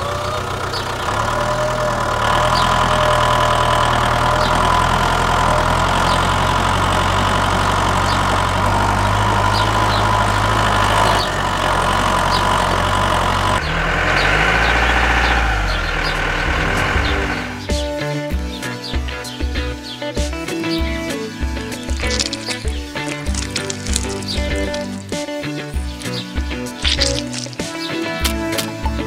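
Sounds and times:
tractor engine idling: 0:00.0 - 0:20.0, 0:20.6 - 0:29.0
faint regular ticks: 0:21.7 - 0:25.3, 0:26.0 - 0:28.9.

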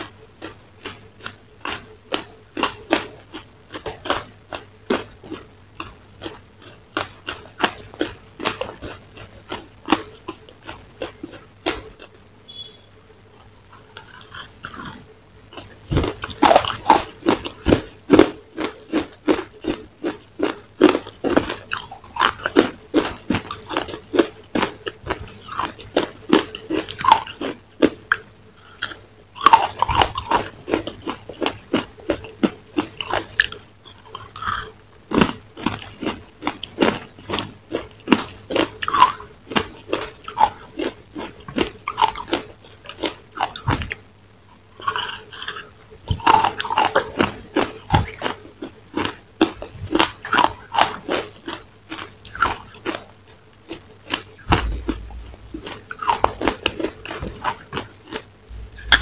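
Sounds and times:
crunchy chewing: 0:00.0 - 0:59.0
faint steady hum: 0:00.0 - 0:59.0.

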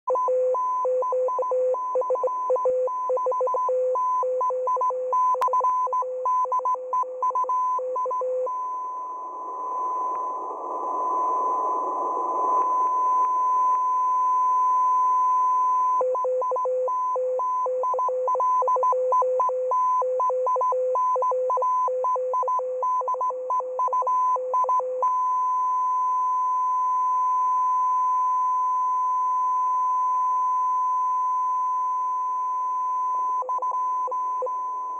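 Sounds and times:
long steady tone: 0:00.1 - 0:34.9
static hiss: 0:09.1 - 0:13.8.

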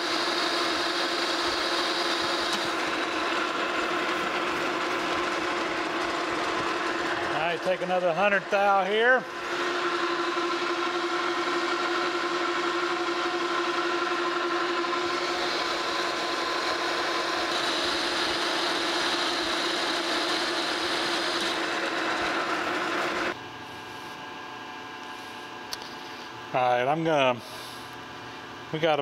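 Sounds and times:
metal lathe whine: 0:00.0 - 0:29.0.

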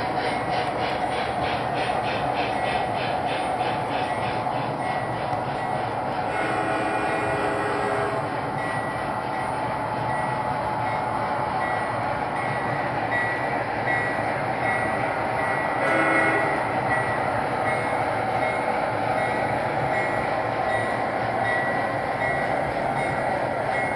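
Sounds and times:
model train wheels rumbling on track: 0:00.0 - 0:23.9
locomotive horn: 0:06.3 - 0:08.3, 0:15.8 - 0:16.7.

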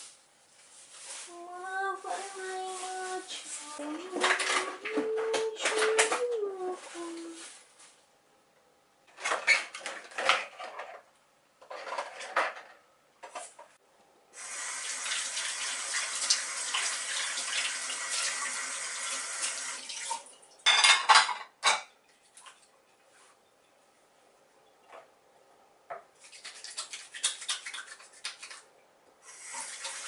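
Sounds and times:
dishes clattering: 0:20.6 - 0:21.9.

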